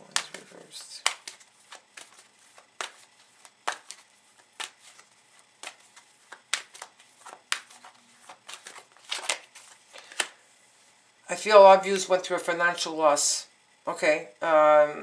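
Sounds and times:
cards being shuffled: 0.0 - 10.4.

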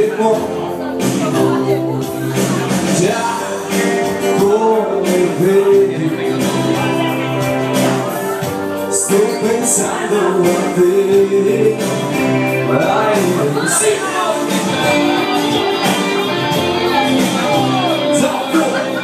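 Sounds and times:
live electric band playing: 0.0 - 19.0
person singing lead vocal: 0.0 - 19.0.

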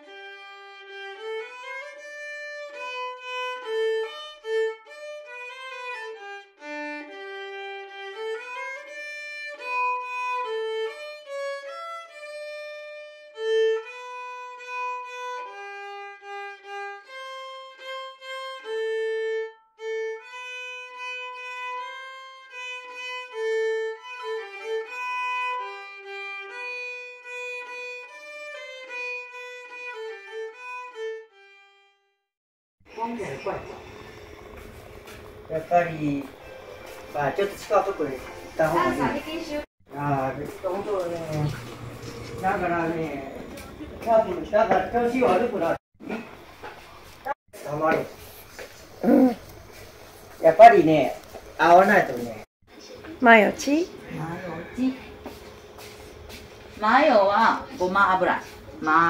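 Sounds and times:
violin playing a melody: 0.0 - 31.8, 33.8 - 45.8.

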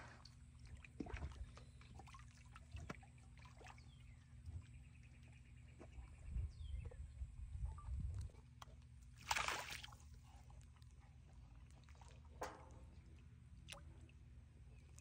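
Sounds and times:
small splashes: 0.0 - 4.3, 9.0 - 10.7, 11.6 - 14.2
water sloshing and lapping: 0.0 - 7.2, 8.1 - 15.0.

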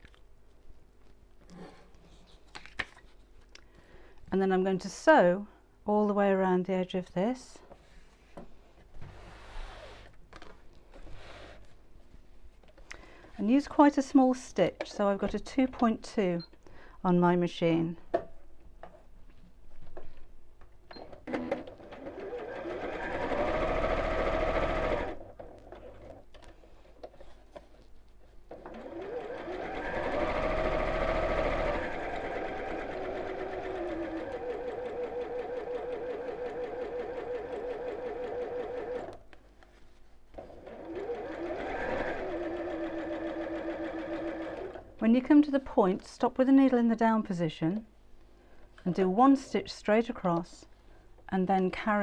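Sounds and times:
sewing machine stitching: 21.3 - 26.2, 28.5 - 39.1, 40.4 - 44.9.

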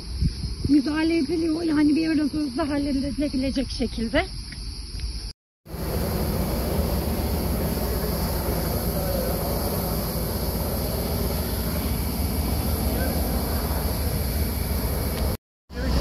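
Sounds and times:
aircraft engine drone: 5.7 - 16.0.

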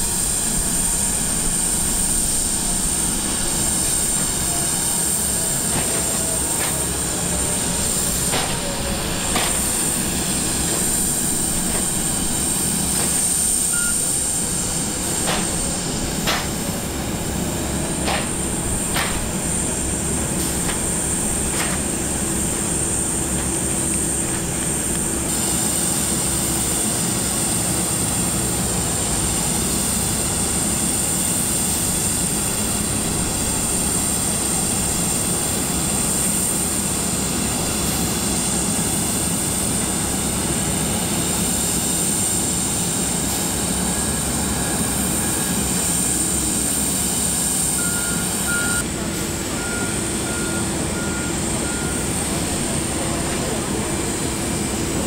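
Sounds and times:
jet engine high-pitched whine: 0.0 - 55.0
reversing alarm beeps: 13.6 - 14.3, 47.7 - 52.2.

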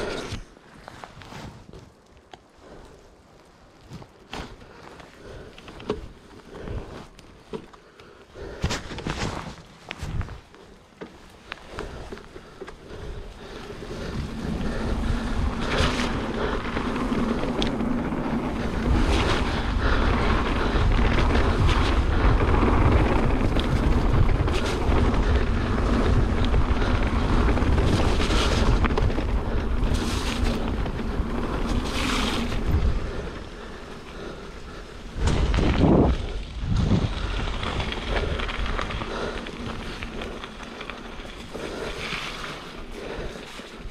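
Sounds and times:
bike clicks and rattles: 0.0 - 43.9
bike tyres on dirt trail: 0.0 - 43.9
wind buffeting microphone: 11.7 - 43.9.

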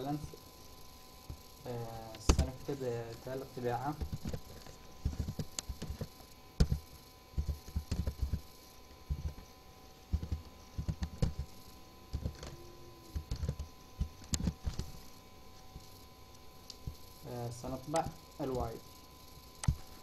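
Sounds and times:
keyboard typing: 10.1 - 13.7.

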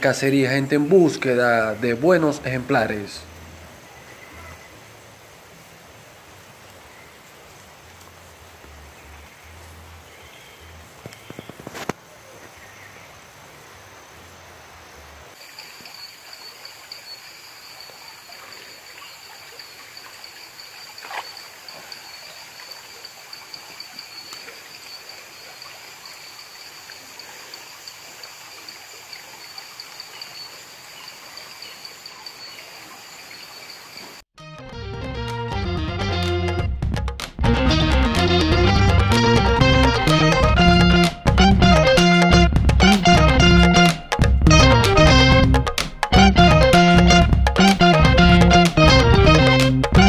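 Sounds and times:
creek water trickling: 0.0 - 34.2
insects chirring: 10.1 - 34.2
music: 34.4 - 50.0.

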